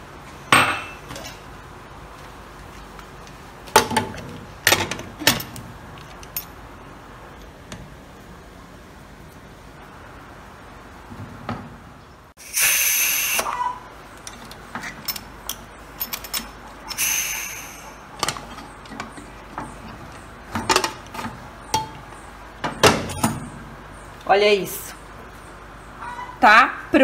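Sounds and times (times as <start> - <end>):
pressure cooker steam hissing: 12.4 - 13.5, 17.0 - 18.0.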